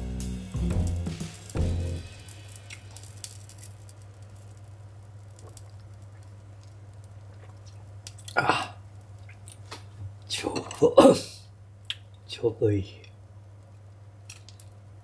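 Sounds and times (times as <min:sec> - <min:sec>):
man drinking from a cup: 0:07.2 - 0:08.8.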